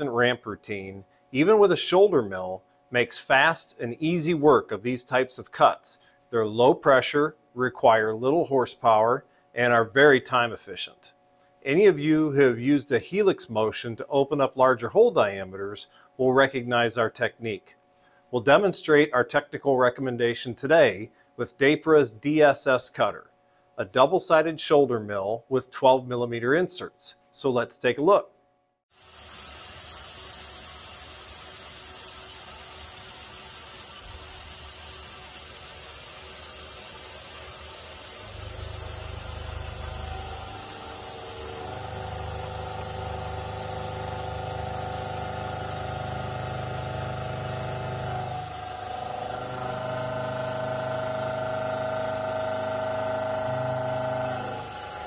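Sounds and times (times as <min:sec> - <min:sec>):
steady hiss: 0:29.0 - 0:55.0
milling cutter hum: 0:36.4 - 0:55.0
ringing whine: 0:38.2 - 0:55.0.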